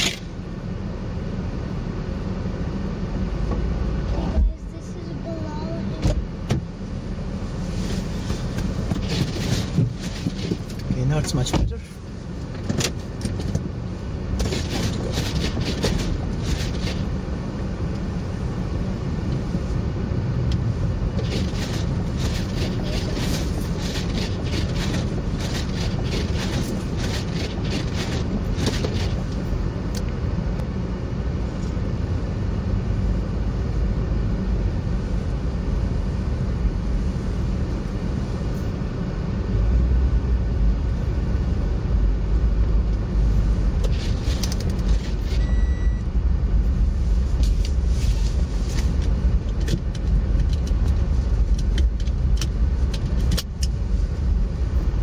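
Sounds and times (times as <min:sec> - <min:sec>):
engine and tyre rumble: 0:00.0 - 0:55.0
windshield wipers scraping: 0:07.6 - 0:17.2, 0:21.1 - 0:29.5, 0:43.6 - 0:45.5, 0:47.0 - 0:53.7
short beep: 0:45.3 - 0:46.1.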